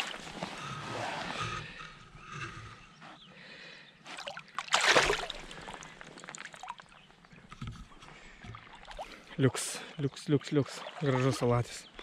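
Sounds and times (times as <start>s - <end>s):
fish splashing in river water: 4.1s - 7.0s.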